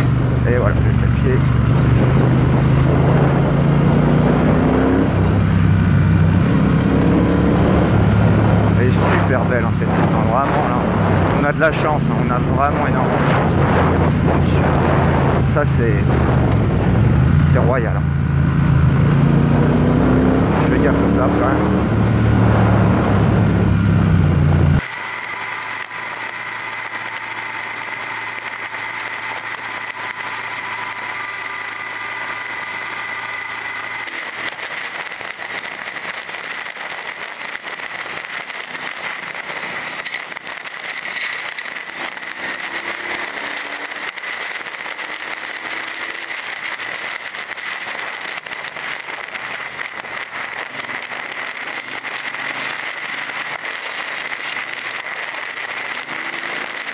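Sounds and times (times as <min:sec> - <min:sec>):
wind noise: 0:00.0 - 0:17.6, 0:21.3 - 0:24.8
motorcycle engine running: 0:00.0 - 0:56.9
crackling: 0:20.1 - 0:56.9.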